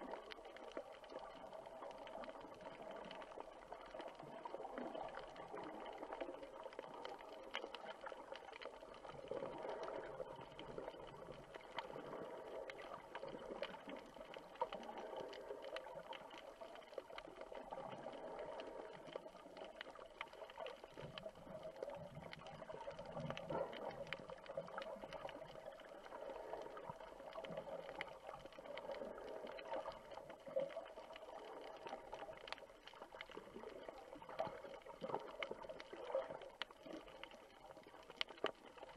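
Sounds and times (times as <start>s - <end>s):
faint crackling clicks: 0.0s - 38.9s
muffled underwater noise: 0.0s - 38.9s.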